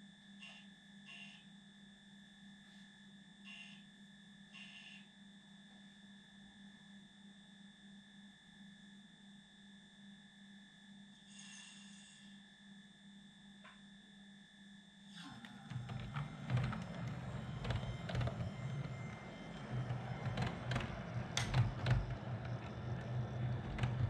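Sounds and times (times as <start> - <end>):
high whining tones: 15.3 - 24.0.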